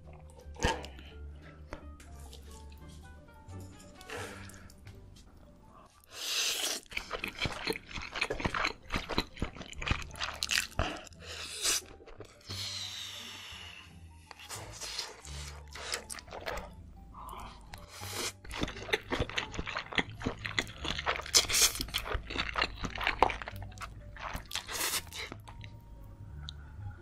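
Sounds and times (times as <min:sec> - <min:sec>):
wet chewing: 0:06.1 - 0:12.5, 0:14.3 - 0:25.8
noodle slurping: 0:24.2 - 0:25.4.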